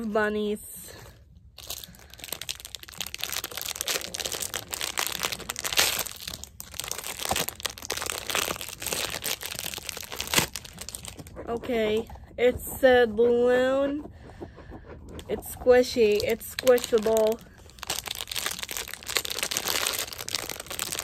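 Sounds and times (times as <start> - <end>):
plastic wrapper crinkling: 1.6 - 11.5, 15.4 - 21.0.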